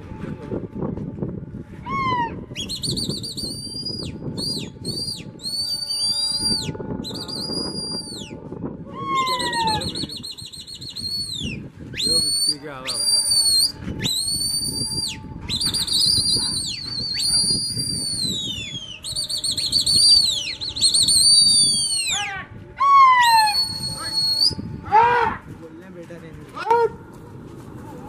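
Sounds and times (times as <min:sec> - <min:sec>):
loud high whistles: 0:02.6 - 0:08.4, 0:09.0 - 0:22.2, 0:23.2 - 0:24.6.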